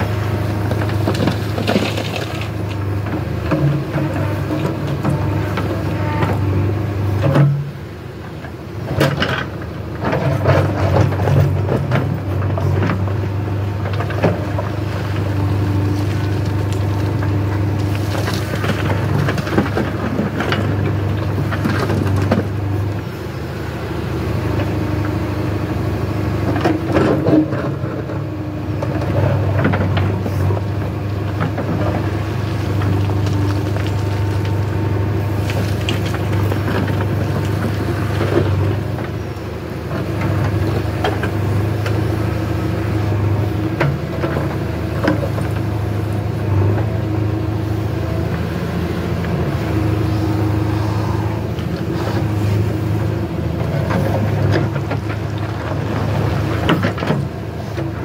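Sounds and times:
backhoe diesel engine: 0.0s - 58.0s
soil and stones thudding into metal: 0.9s - 2.7s.

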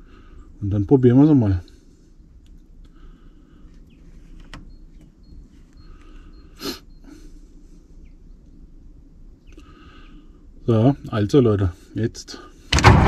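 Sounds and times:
faint clicks: 2.3s - 3.0s, 9.4s - 9.7s.

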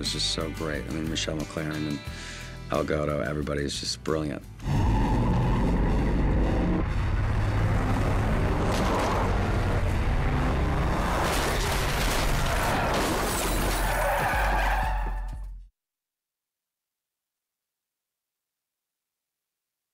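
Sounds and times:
dramatic music with low drone: 4.5s - 12.7s
car reversing hard: 4.7s - 13.0s
debris crackling: 6.9s - 14.9s
car crash: 6.9s - 15.2s
glass shattering: 11.1s - 14.6s.

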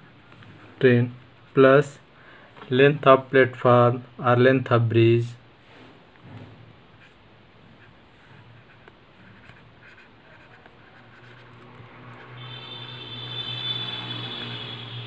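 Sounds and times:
pen scratching on laminated sheet: 7.0s - 12.5s.

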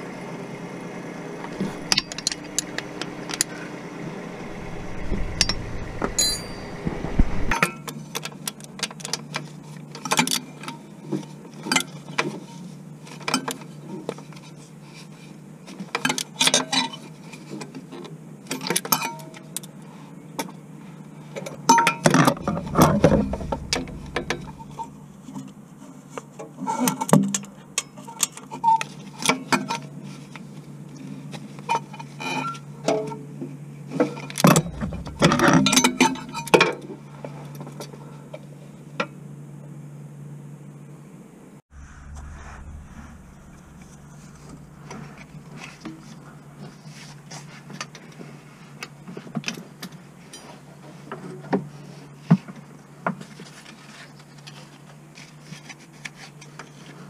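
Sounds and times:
low hum: 1.4s - 7.5s, 22.2s - 25.3s, 34.4s - 36.5s, 41.7s - 46.6s
metal hand tools clinking: 6.2s - 6.7s.

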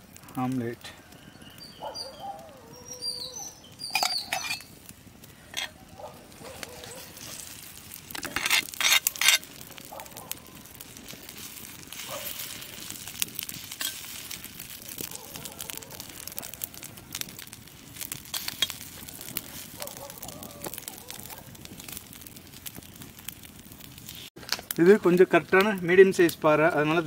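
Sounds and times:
metal utensils clinking and scraping: 3.8s - 4.7s, 5.5s - 5.8s, 8.1s - 9.5s, 13.7s - 14.1s.

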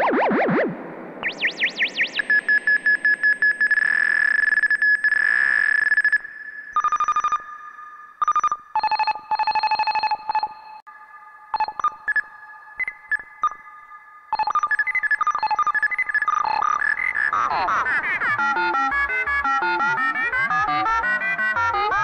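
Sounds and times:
synthesizer bleeps: 0.0s - 3.3s, 14.4s - 22.0s.

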